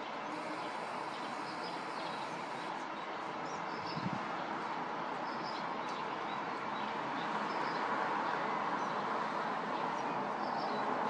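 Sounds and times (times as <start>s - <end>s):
distant traffic: 0.0s - 5.6s.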